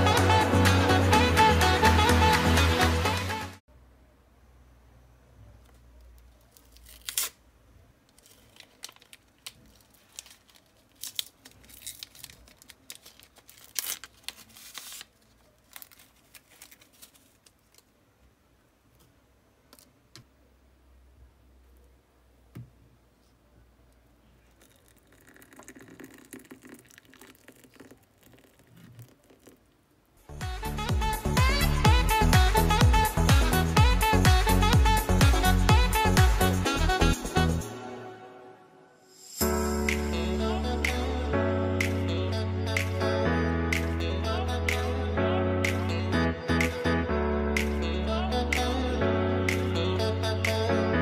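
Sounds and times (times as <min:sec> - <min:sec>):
paper sachet tearing: 0:06.4 - 0:07.4, 0:08.1 - 0:17.9
paper crinkles and small clicks: 0:08.0 - 0:18.0
water pouring into a ceramic cup: 0:24.5 - 0:29.6.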